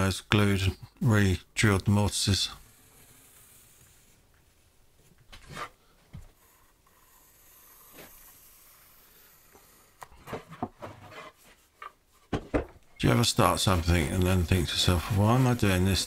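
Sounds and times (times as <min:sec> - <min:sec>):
pencil scratching on wood: 0:02.3 - 0:04.4, 0:05.4 - 0:12.1, 0:13.1 - 0:16.0.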